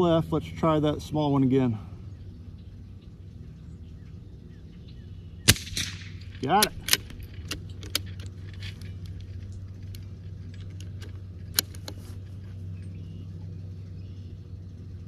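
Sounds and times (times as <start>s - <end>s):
low hum: 0.0s - 15.0s
rifle shot crack: 5.4s - 7.2s
rifle bolt clicking: 5.5s - 12.0s.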